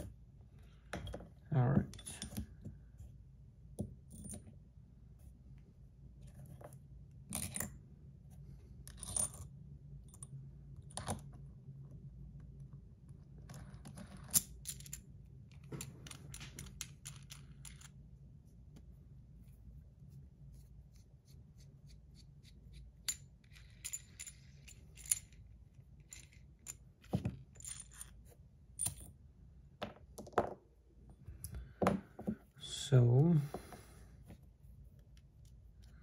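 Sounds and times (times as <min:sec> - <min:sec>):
small metal parts clicking: 0:13.6 - 0:17.9, 0:23.0 - 0:26.8.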